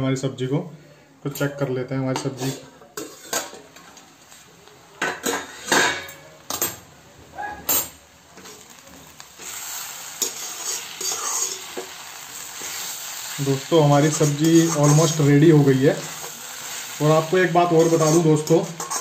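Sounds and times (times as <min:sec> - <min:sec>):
spatula scraping a pan: 0:02.2 - 0:03.7, 0:05.2 - 0:06.2, 0:09.4 - 0:13.2, 0:14.0 - 0:15.3, 0:17.6 - 0:19.0
food sizzling: 0:02.5 - 0:19.0.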